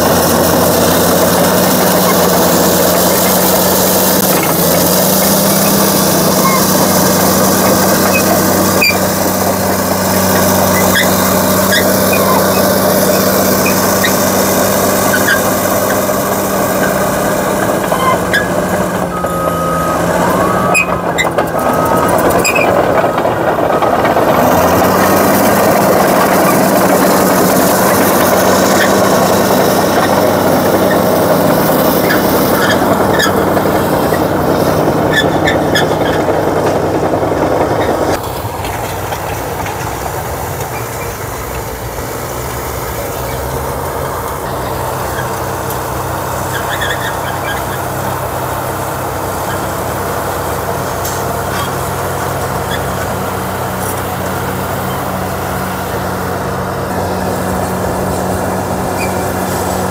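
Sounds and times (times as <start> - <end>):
bulldozer diesel engine running: 0.0 - 59.9
short squeaks and clicks: 4.2 - 24.0, 46.4 - 48.0, 58.9 - 59.6
steady high tone: 18.8 - 24.2.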